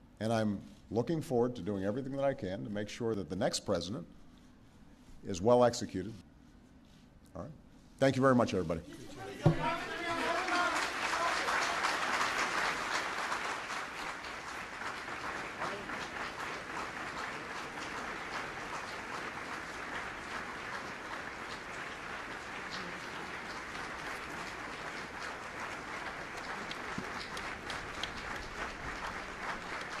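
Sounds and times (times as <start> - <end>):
crowd applauding: 9.5 - 30.0.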